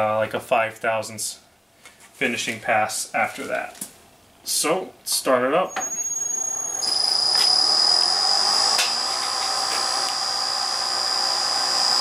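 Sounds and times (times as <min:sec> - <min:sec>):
milling machine whine: 0:05.7 - 0:12.0.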